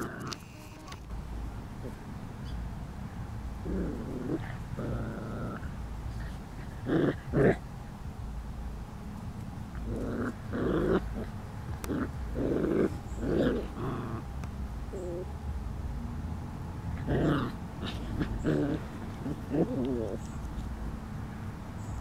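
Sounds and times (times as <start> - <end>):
puppies growling: 0.0 - 1.0, 3.6 - 7.6, 9.7 - 14.3, 17.0 - 20.6
puppy whining: 15.0 - 15.3.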